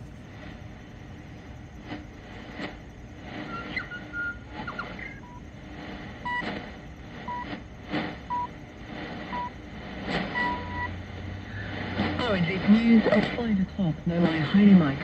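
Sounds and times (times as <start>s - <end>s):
static hiss and crackles: 0.0s - 15.0s
short radio beeps: 9.3s - 9.6s, 10.3s - 11.0s.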